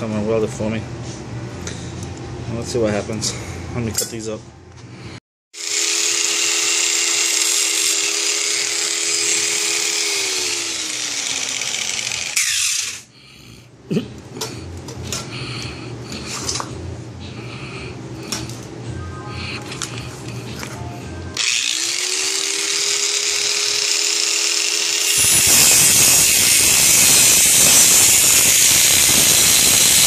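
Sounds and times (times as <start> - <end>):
angle grinder cutting metal: 5.6 - 13.1, 21.4 - 30.0.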